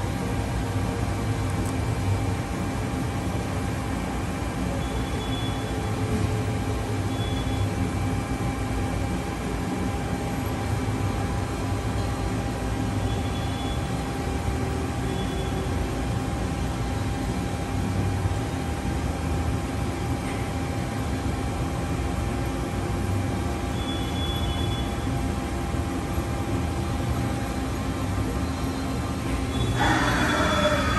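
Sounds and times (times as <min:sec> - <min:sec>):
high-pitched whines: 0:27.4 - 0:30.9.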